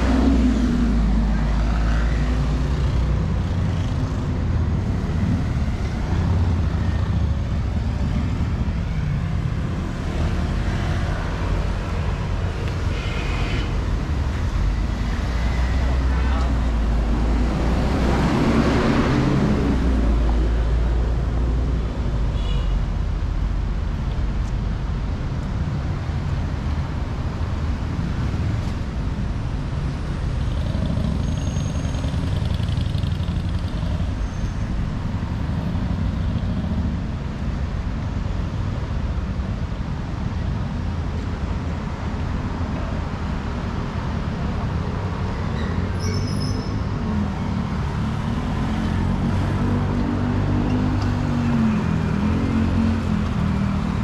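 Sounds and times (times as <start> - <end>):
rumble of passing traffic: 0.0 - 54.0.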